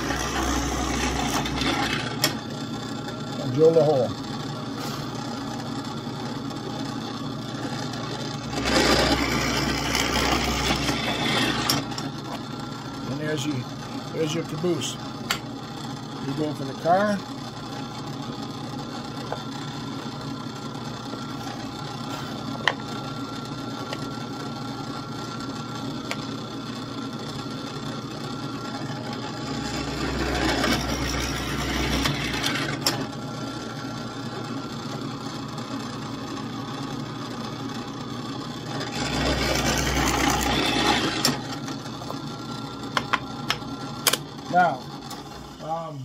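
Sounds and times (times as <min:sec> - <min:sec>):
drill bit boring into wood: 0:00.0 - 0:02.3, 0:08.4 - 0:12.0, 0:29.3 - 0:32.9, 0:38.7 - 0:41.4
drill press motor running: 0:00.0 - 0:46.0.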